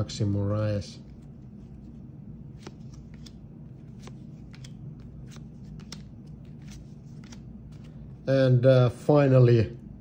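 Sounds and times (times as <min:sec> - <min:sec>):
faint low hum: 0:00.0 - 0:10.0
trading cards flicking: 0:02.5 - 0:07.9.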